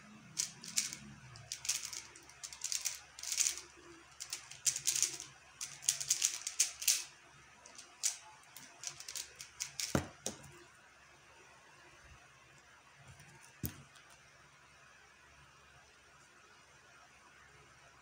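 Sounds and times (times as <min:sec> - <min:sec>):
puzzle cube plastic clicks: 0:00.4 - 0:07.1, 0:07.7 - 0:10.4.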